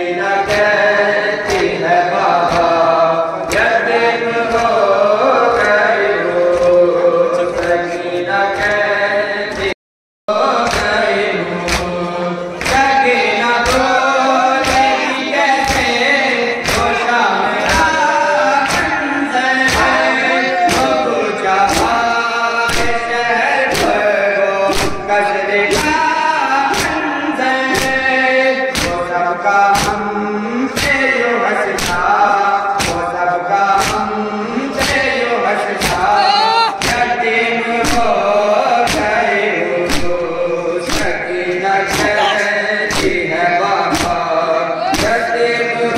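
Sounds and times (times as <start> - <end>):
men chanting a lament: 0.0 - 45.9
chest-beating thumps: 37.8 - 43.3.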